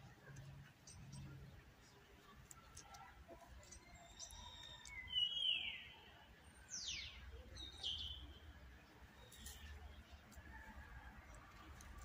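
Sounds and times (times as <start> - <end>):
birds chirping and whistling: 3.7 - 5.9.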